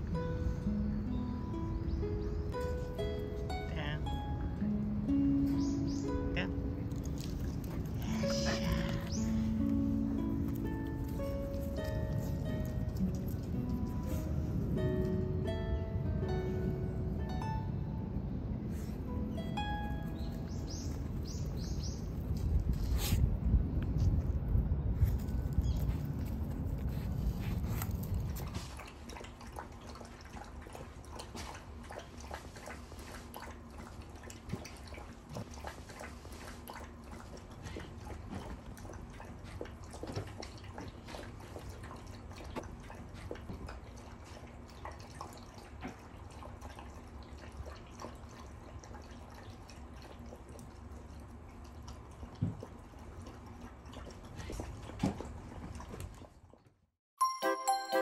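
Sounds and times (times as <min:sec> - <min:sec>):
dogs lapping water: 0:05.7 - 0:15.4, 0:25.2 - 0:56.9
wind rumbling on microphone: 0:11.2 - 0:28.8.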